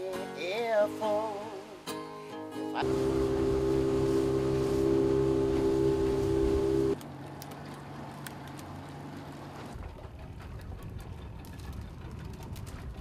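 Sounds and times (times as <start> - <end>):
wind: 0.0 - 13.0
outboard motor hum: 2.8 - 7.0
water noise: 2.8 - 7.0.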